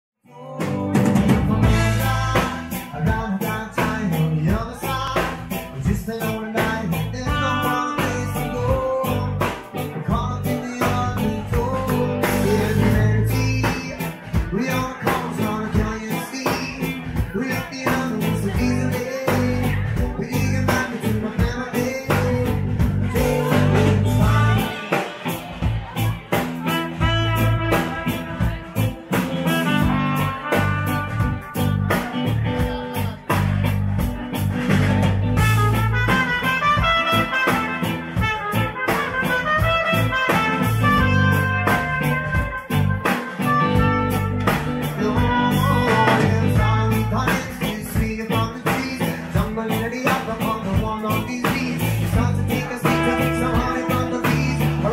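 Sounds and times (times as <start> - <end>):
electric guitar: 0.3 - 54.9
drum kit: 0.5 - 54.9
trumpet melody: 7.1 - 9.1, 23.1 - 26.0, 26.6 - 32.2, 35.4 - 47.6, 52.6 - 54.9.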